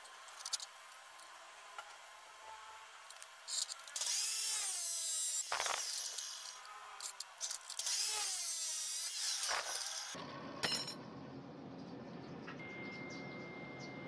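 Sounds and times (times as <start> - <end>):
abrasive saw cutting steel: 3.4 - 10.2.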